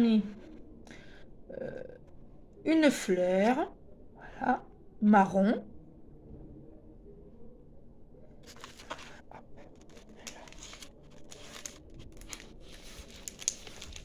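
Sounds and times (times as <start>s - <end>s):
plastic and paper crinkling: 8.4s - 14.0s.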